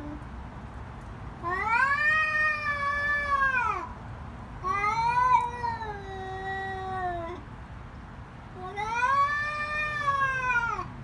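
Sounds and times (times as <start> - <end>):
cat yowling: 1.4 - 3.9, 4.6 - 7.4, 8.7 - 10.9.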